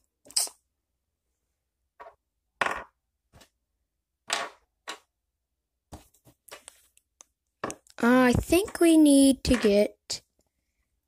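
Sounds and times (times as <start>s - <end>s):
plastic pieces knocking on a table: 2.0s - 3.5s, 4.2s - 5.1s, 7.6s - 9.8s.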